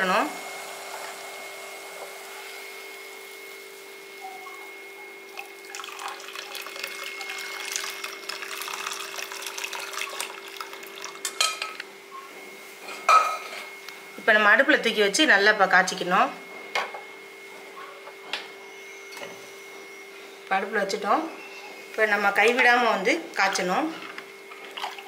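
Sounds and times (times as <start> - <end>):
steady background hum: 0.0 - 25.0
syrup pouring and splashing: 5.4 - 11.3.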